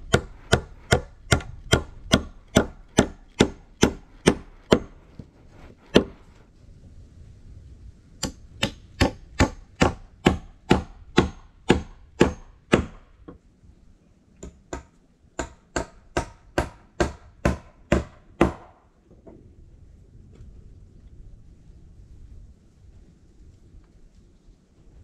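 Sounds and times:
axe striking wood: 0.1s - 5.0s, 5.9s - 6.2s, 8.2s - 13.0s, 14.4s - 18.8s.

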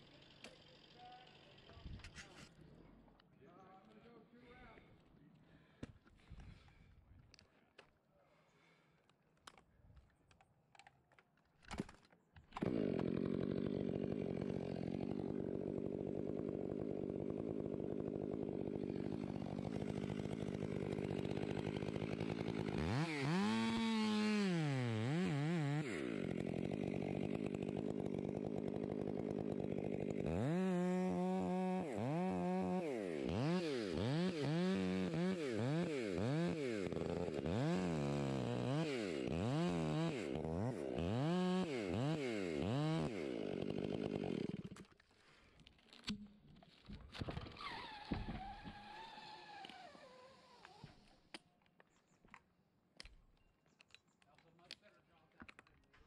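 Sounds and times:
chainsaw idling and revving: 0.0s - 2.2s, 12.6s - 45.0s, 47.4s - 51.1s.

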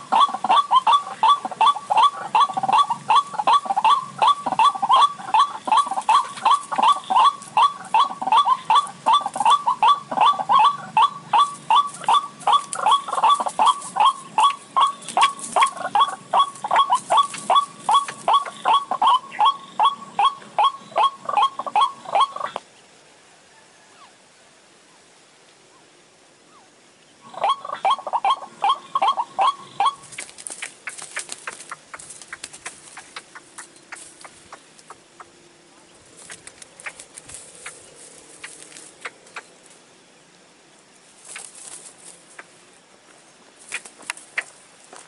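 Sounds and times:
waterhen call: 0.0s - 22.6s, 26.5s - 35.4s.

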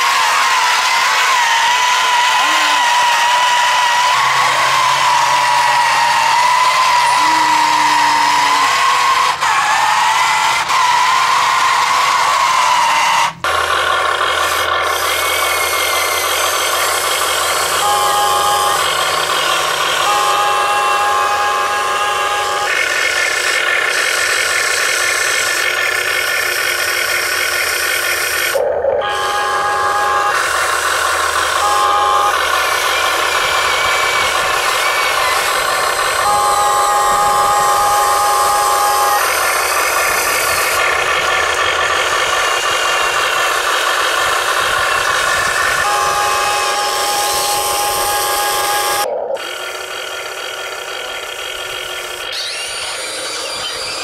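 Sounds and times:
electric motors and gearboxes whining: 0.0s - 54.0s.

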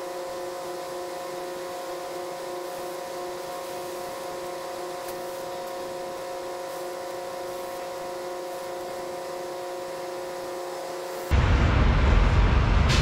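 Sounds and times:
air compressor humming: 0.0s - 13.0s.

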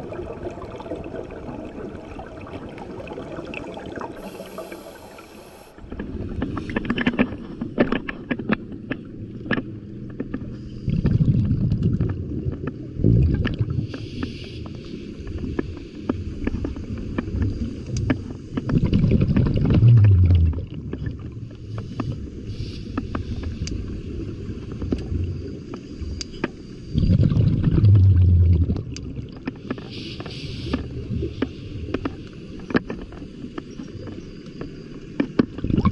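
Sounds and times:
exhaled bubbles rumbling: 0.0s - 14.2s, 15.3s - 32.8s, 35.5s - 35.9s
regulator inhalation hiss: 4.2s - 5.8s, 13.8s - 15.2s, 21.8s - 23.4s, 29.8s - 30.9s.

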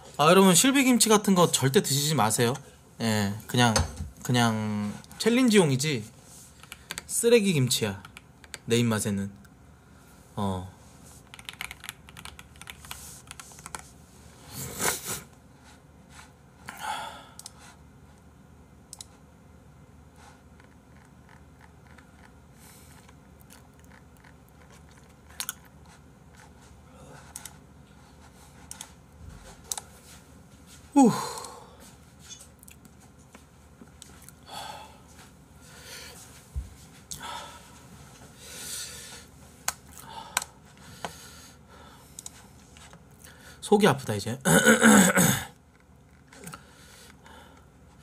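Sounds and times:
computer keyboard clicks: 6.6s - 7.1s, 11.3s - 13.8s
person groaning: 31.0s - 31.7s.

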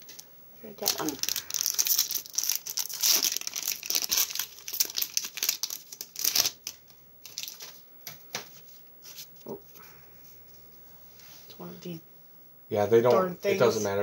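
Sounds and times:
foil wrapper crinkling and tearing: 0.8s - 7.8s.

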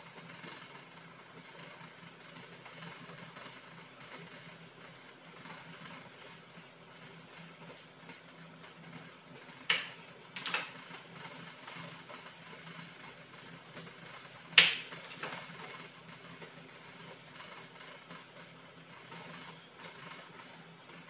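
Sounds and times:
induction cooktop hum: 0.0s - 21.0s.

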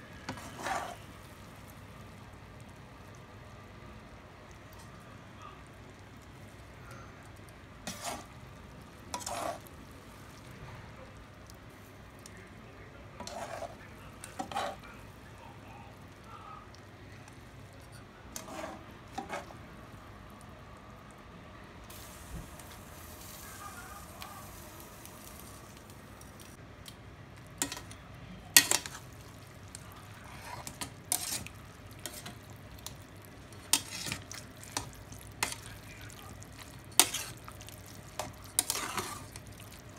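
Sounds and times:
metal utensil scraping pot: 9.1s - 9.6s, 13.2s - 14.8s, 17.8s - 19.5s, 28.6s - 29.0s, 30.2s - 32.4s, 33.5s - 35.6s, 36.9s - 37.4s, 38.2s - 39.3s
soft hiss: 21.8s - 26.6s.

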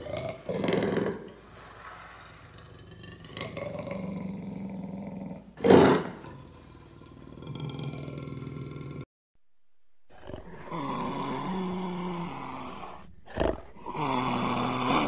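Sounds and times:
lion roaring and growling: 10.1s - 15.0s.

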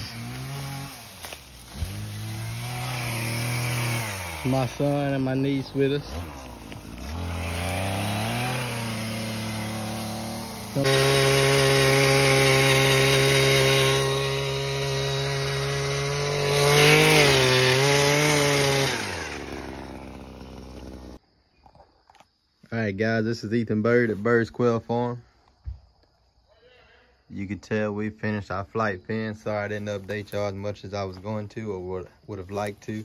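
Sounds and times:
small gas engine running: 0.0s - 21.2s.

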